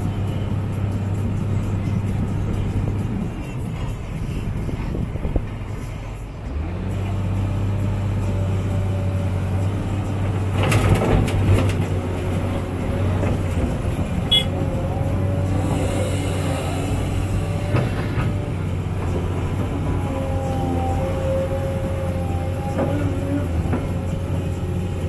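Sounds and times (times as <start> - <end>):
excavator engine and hydraulics: 0.0 - 25.0.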